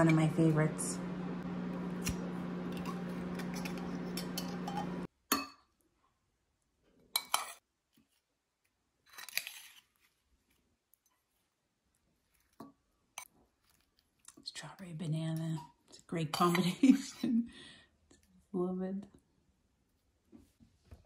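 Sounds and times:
steady low hum: 0.0s - 5.1s
spoon scraping bowl: 2.6s - 5.1s
spoon clinking ceramic bowls: 2.8s - 5.6s.

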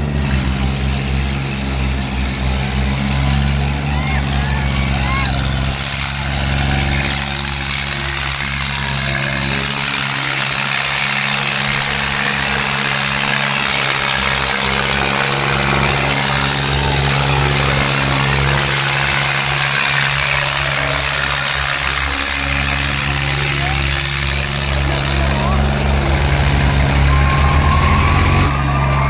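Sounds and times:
background rush of noise: 0.0s - 29.0s
tractor engines idling: 0.0s - 29.0s.

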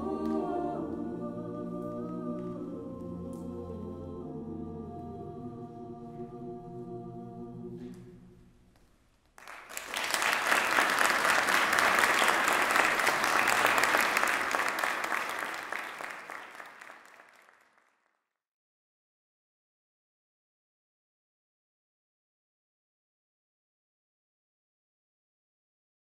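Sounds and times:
choir holding a chord: 0.0s - 8.3s, 10.6s - 16.0s
audience applause: 9.4s - 17.9s.

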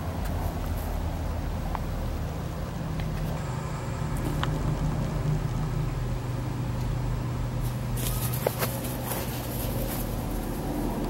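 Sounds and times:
low mechanical hum: 0.0s - 11.0s
short rustles: 7.6s - 10.6s.

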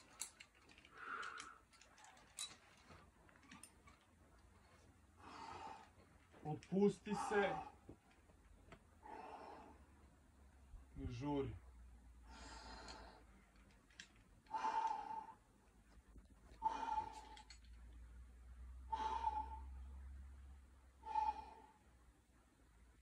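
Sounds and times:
person breathing hard: 0.8s - 2.3s, 5.2s - 6.4s, 9.0s - 10.0s, 12.2s - 13.5s, 14.5s - 15.5s, 16.5s - 17.7s, 18.8s - 20.0s, 21.0s - 22.0s.

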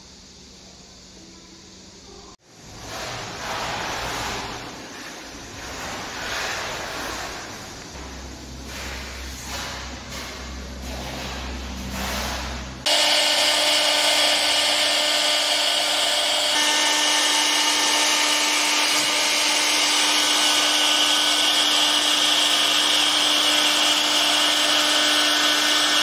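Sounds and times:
bit cutting wood: 12.8s - 26.0s
router spindle whine: 12.8s - 26.0s.

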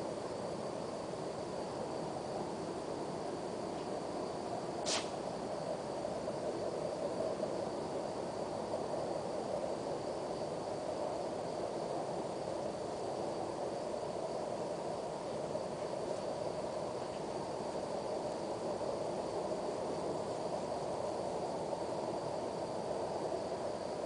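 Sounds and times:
crickets trilling: 0.0s - 24.0s
sharp click: 4.8s - 5.2s.

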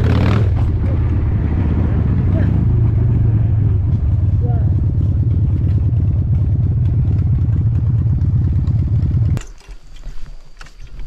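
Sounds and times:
motorcycle engine running: 0.0s - 9.4s.

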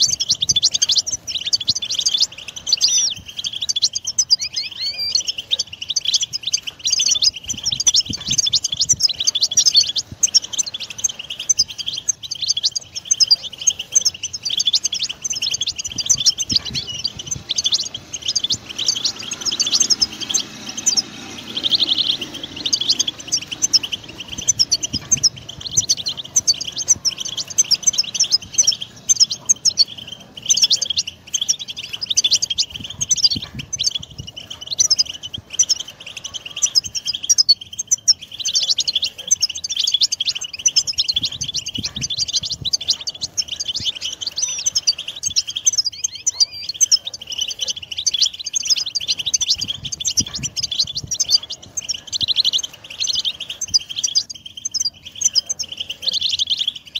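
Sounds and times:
goldfinches twittering: 0.0s - 56.9s.

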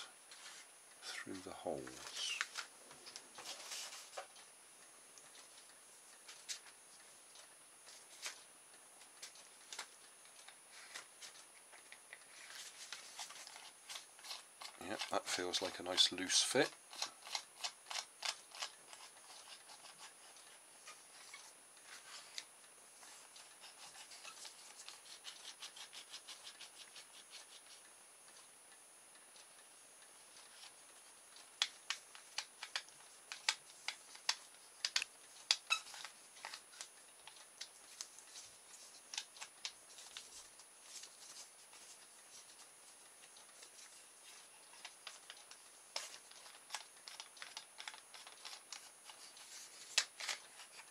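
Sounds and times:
shaft rubbing in plastic: 12.2s - 27.8s, 32.2s - 50.9s
plastic clicks: 31.4s - 38.2s.

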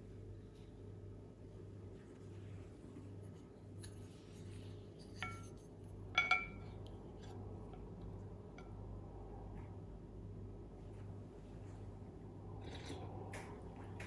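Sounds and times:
faint low hum: 0.0s - 14.0s
spoons clinking on ceramic bowl: 5.0s - 6.8s.

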